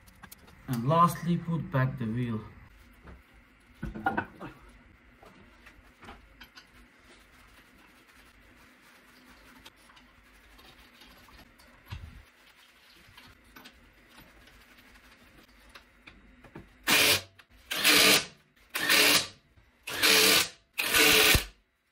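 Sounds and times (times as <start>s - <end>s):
cordless power tool bursts: 16.9s - 19.3s, 19.9s - 21.5s.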